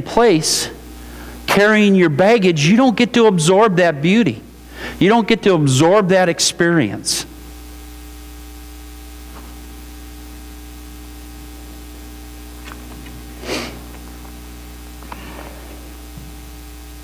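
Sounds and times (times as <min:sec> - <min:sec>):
electrical hum: 0:00.0 - 0:17.0
hissy burst of noise: 0:12.6 - 0:14.3.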